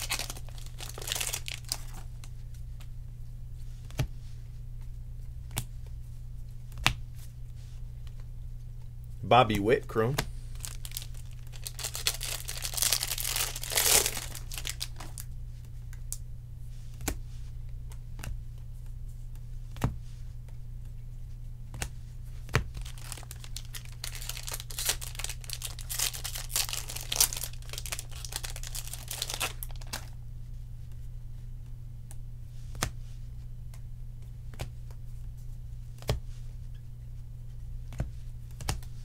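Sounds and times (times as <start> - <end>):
foil wrapper tearing and crinkling: 0.0 - 2.1, 10.6 - 15.3, 22.8 - 30.1
steady low hum: 0.0 - 39.0.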